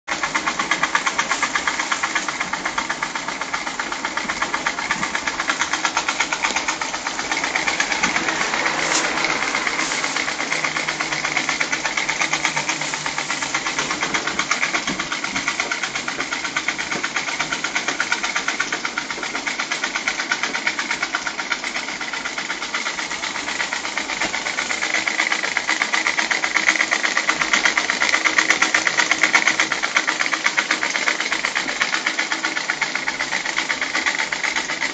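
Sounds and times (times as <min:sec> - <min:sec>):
model steam engine beating: 0:00.1 - 0:34.9
steady steam hiss: 0:06.8 - 0:14.7.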